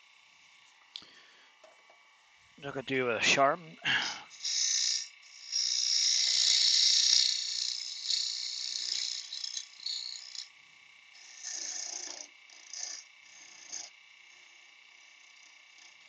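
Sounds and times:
gouge cutting wood on lathe: 4.3 - 10.5, 11.2 - 16.0.

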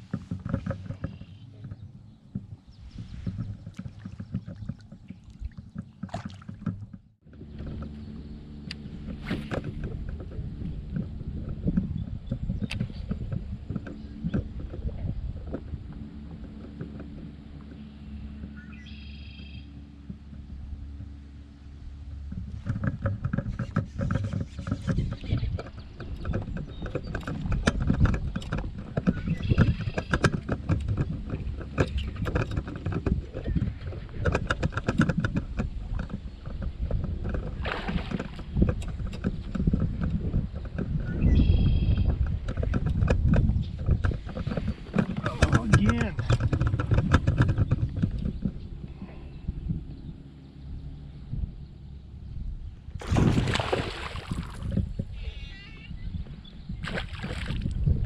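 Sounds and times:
water lapping against paddleboard: 0.0 - 50.5, 53.0 - 58.0
low rumbling: 0.0 - 58.0
small knocks: 22.1 - 48.6
brief splashes: 53.0 - 54.7, 56.8 - 57.8.

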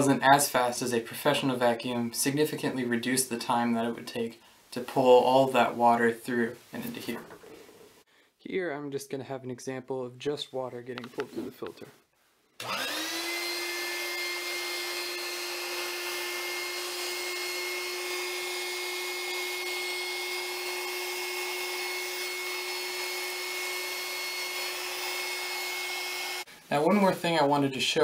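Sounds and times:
air pump whine: 12.6 - 26.5.

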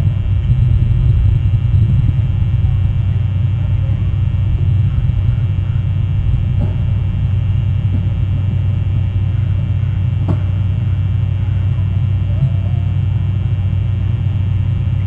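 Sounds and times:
steady low rumble: 0.0 - 15.0
faint wavering call: 10.8 - 14.4.

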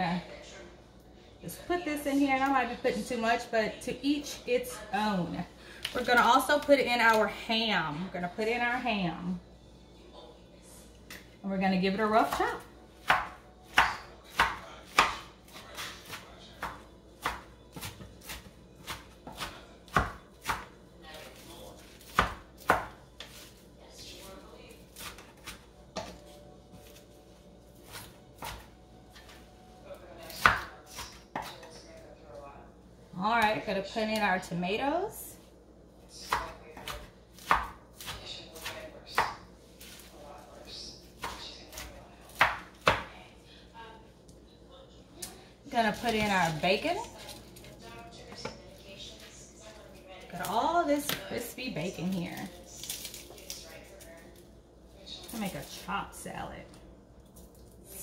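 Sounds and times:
knife chopping on wooden board: 13.0 - 20.7, 22.0 - 23.5, 36.2 - 39.4.

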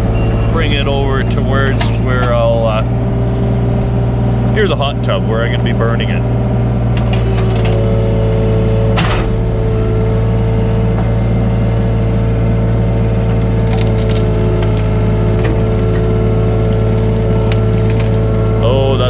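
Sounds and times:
excavator diesel engine running: 0.0 - 19.0
branches cracking and snapping: 13.3 - 19.0.

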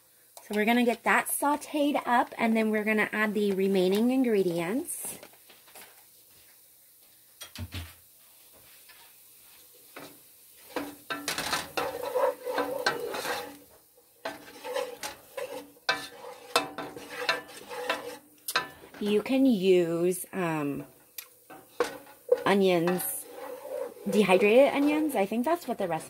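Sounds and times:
onions sizzling in butter: 0.1 - 26.0
wooden spoon scraping a pot: 10.6 - 19.4, 20.4 - 26.0.

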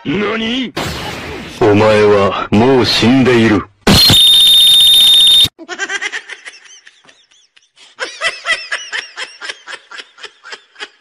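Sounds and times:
loud distorted blast with shrill tone: 3.9 - 5.5
high-pitched laughter: 5.6 - 11.0.

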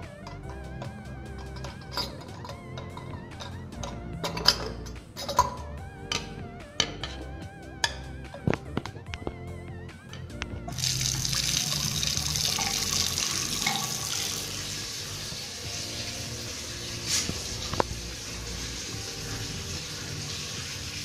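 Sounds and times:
tap water running into basin: 10.7 - 21.0.

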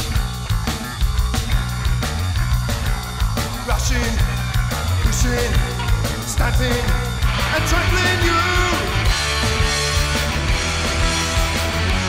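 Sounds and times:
bass and electric guitar: 0.0 - 12.0
drums steady beat: 0.0 - 12.0
sliding lead guitar line: 0.0 - 12.0.

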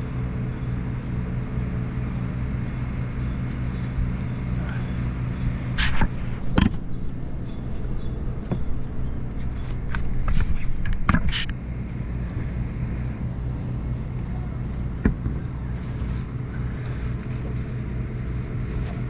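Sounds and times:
low machine hum: 0.0 - 19.0
knocks and clatters: 8.4 - 11.6.

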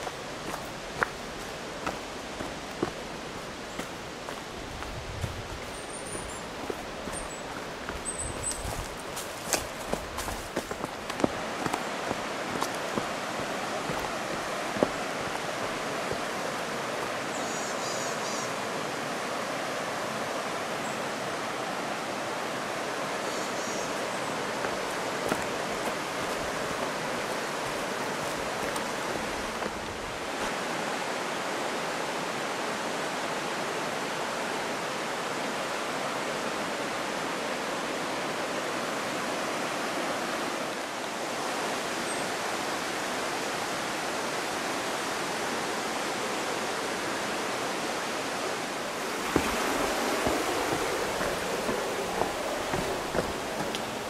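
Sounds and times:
river running over rocks: 0.0 - 54.0.

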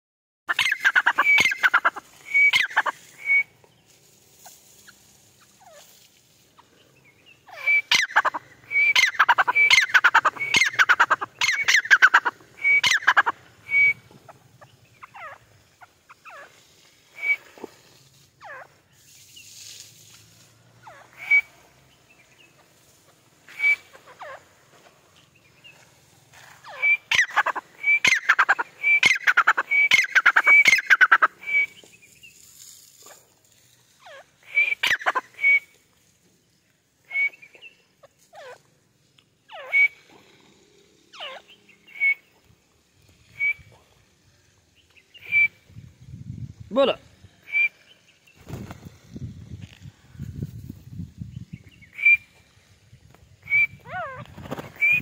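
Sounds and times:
francolin calling shrill notes: 0.5 - 3.5.

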